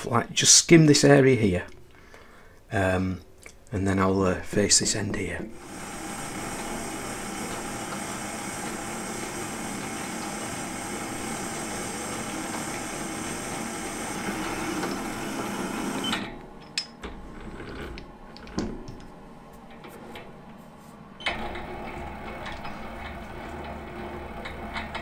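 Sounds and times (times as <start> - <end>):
lathe running hum: 5.4 - 16.5, 21.3 - 25.0
lathe cutting metal: 5.6 - 16.1.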